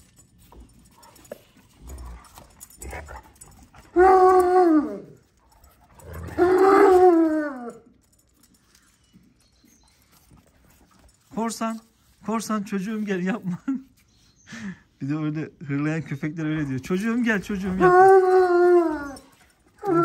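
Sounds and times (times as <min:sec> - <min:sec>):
dog howling: 0:03.9 - 0:05.2, 0:06.0 - 0:07.9, 0:17.5 - 0:20.0.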